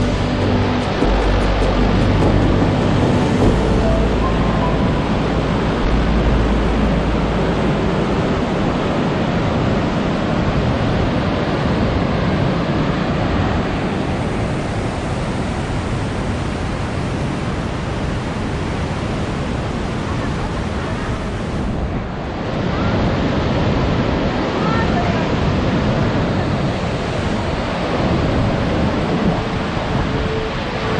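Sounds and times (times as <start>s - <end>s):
whitewater rapids rushing: 0.0s - 21.7s.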